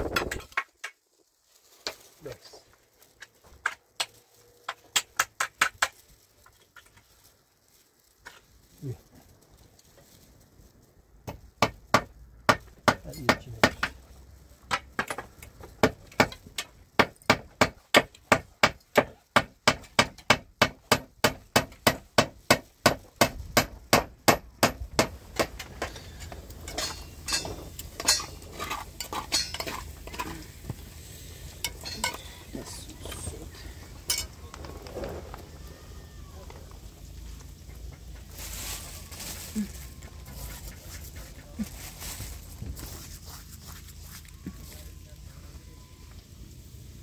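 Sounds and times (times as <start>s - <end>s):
light clinks and knocks: 25.8s - 30.4s.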